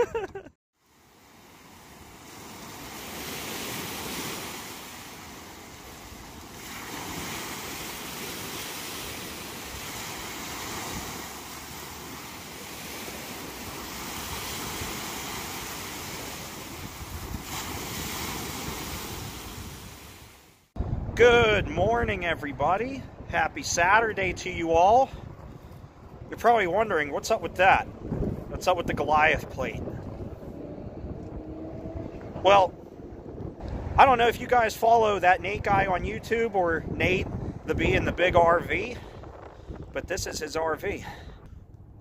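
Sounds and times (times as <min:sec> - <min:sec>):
waves breaking on beach: 0:00.8 - 0:20.7.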